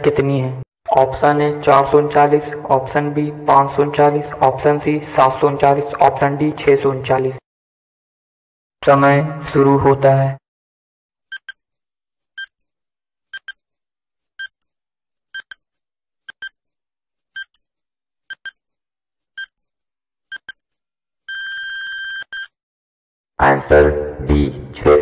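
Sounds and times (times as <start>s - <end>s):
long steady beep: 21.3s - 22.5s.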